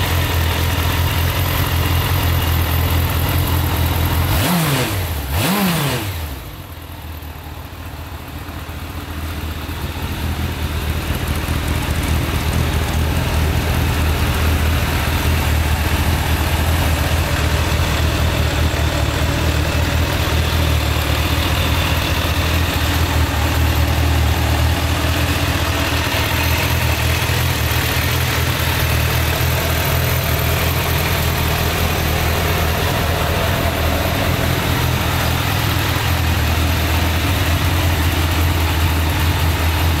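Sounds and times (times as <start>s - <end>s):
motorcycle engine idling: 0.0s - 40.0s.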